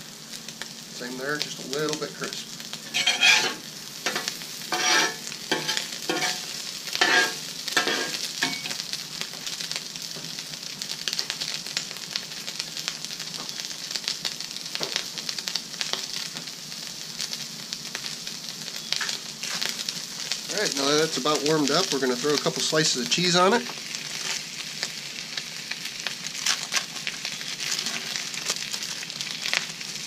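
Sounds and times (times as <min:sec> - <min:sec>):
sausage sizzling on a griddle: 0:00.0 - 0:30.0
metal spatula scraping a plate: 0:02.9 - 0:06.4, 0:07.0 - 0:08.6, 0:27.6 - 0:28.2.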